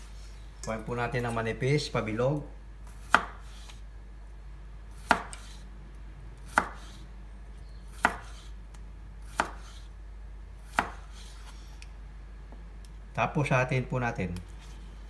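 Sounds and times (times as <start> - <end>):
knife chopping on wooden board: 2.9 - 3.8, 5.0 - 5.6, 6.5 - 7.0, 7.9 - 8.5, 9.2 - 9.9, 10.6 - 11.5.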